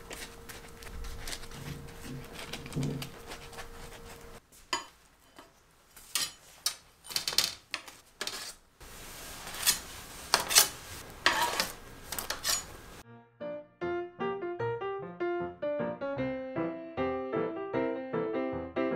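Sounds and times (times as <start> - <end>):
light metallic knocks and scrapes: 0.1 - 8.6, 9.4 - 12.8
metal trays clinking: 9.7 - 12.8.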